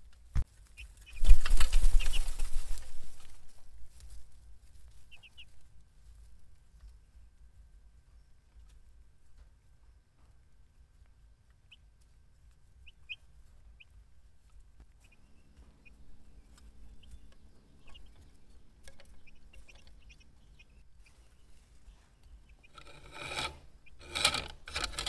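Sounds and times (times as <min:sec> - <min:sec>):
low steady hum: 0:00.0 - 0:25.0
chicks peeping: 0:00.6 - 0:24.3.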